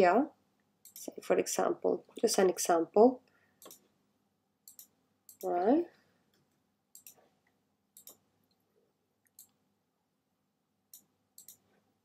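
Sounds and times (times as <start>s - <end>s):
computer mouse clicks: 0.8s - 1.1s, 3.6s - 3.8s, 4.7s - 5.5s, 6.4s - 7.2s, 8.0s - 8.2s, 10.9s - 11.7s.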